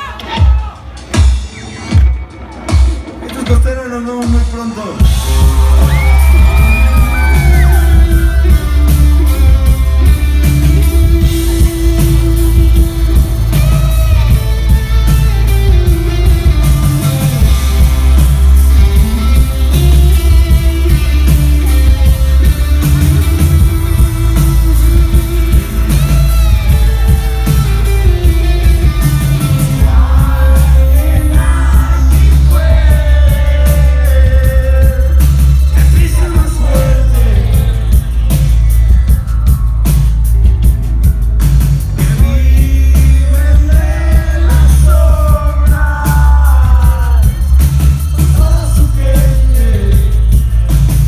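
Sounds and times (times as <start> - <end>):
heavy bass: 0.0 - 51.0
live rock band playing: 0.0 - 51.0
steady drum beat: 0.0 - 51.0
lead vocal singing: 5.0 - 10.2, 29.0 - 38.5, 42.0 - 50.4
electric guitar: 5.1 - 34.7.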